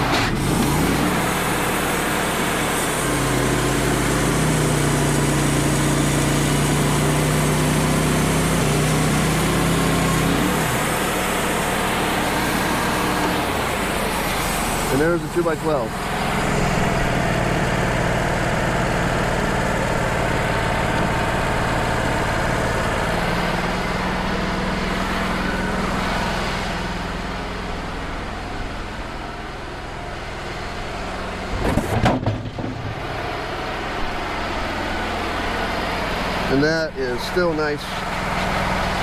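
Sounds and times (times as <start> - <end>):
sawmill engine running: 0.0 - 39.0.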